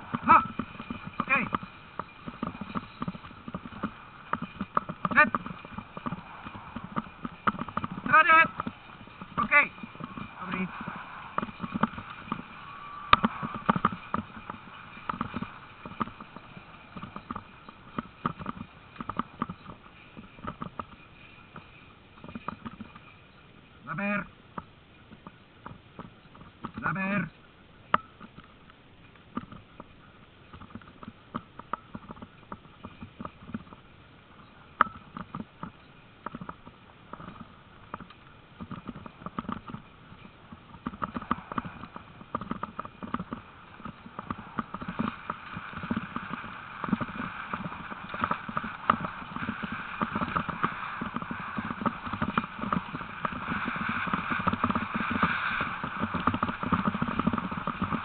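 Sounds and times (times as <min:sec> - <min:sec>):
rolling rushing noise: 0:00.0 - 0:24.0, 0:38.8 - 0:58.0
rig clicking and rattling: 0:00.0 - 0:58.0
sled dogs running in harness: 0:00.0 - 0:58.0.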